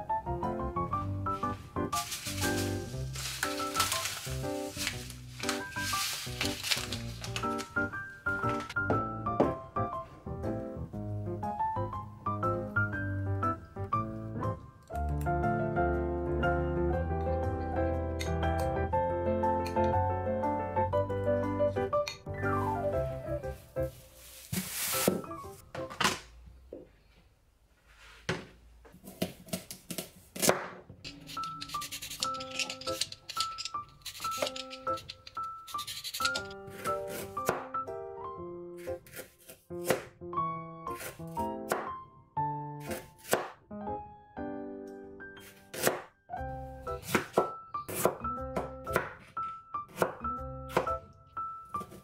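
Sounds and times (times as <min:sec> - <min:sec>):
light background music: 0:00.0 - 0:26.3, 0:31.1 - 0:52.0
plastic bag crinkling: 0:01.9 - 0:07.9, 0:23.5 - 0:25.5
knife cutting carrot on board: 0:45.5 - 0:46.0, 0:47.0 - 0:49.3.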